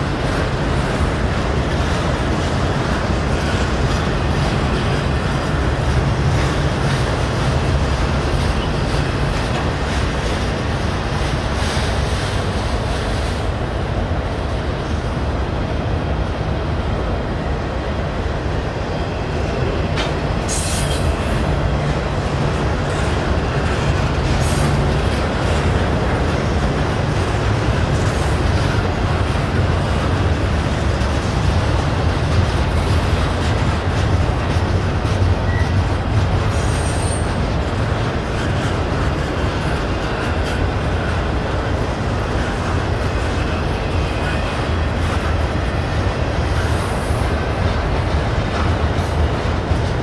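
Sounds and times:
train wheels rumbling on rails: 0:00.0 - 0:50.0.

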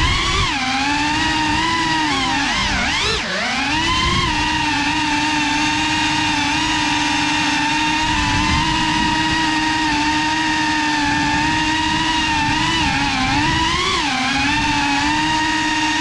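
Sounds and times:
quadcopter motors whining: 0:00.0 - 0:16.0.

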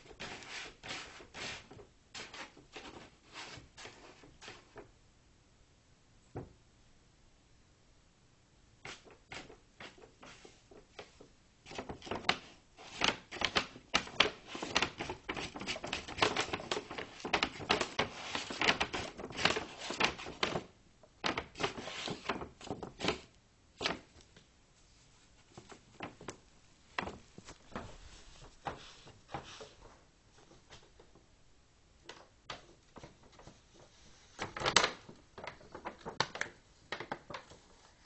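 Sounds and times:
bag rustling and crinkling: 0:25.1 - 0:30.7.

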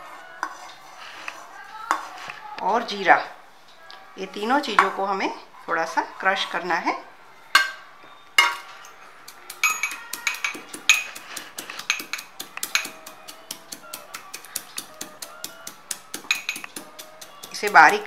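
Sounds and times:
pestle pounding in metal mortar: 0:09.3 - 0:18.0.

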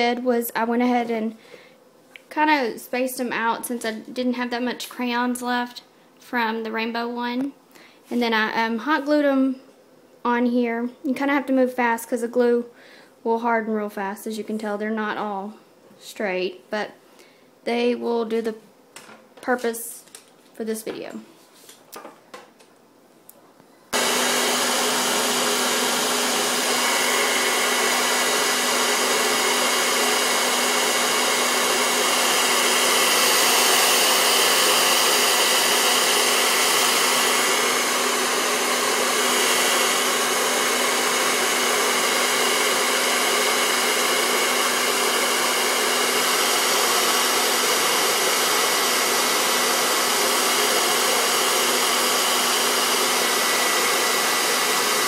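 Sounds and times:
blow dryer running with faint whine: 0:23.9 - 0:55.0.

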